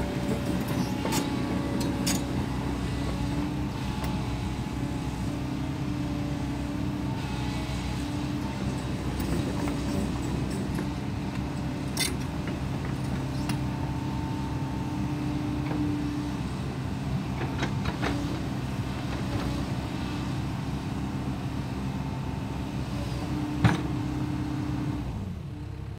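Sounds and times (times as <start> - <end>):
hydraulics working: 0.0 - 19.9
diesel engine running: 0.0 - 25.9.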